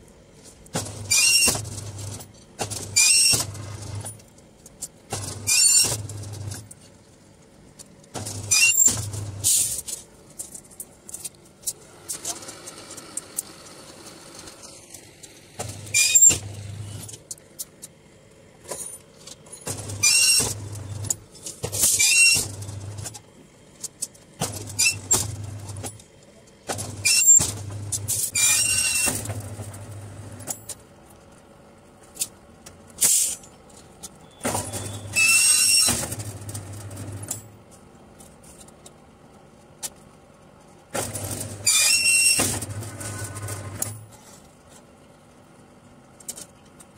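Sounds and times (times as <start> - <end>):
rebar bending machine whirring: 0.8 - 4.2, 5.1 - 6.7, 8.2 - 10.0, 11.7 - 17.2, 19.6 - 23.2, 24.4 - 26.1, 26.7 - 30.8, 34.2 - 37.5, 40.9 - 44.2.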